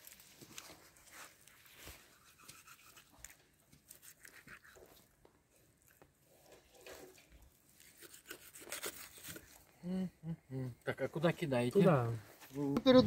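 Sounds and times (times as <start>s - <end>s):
knife scraping meat: 2.1s - 3.1s, 7.8s - 9.4s.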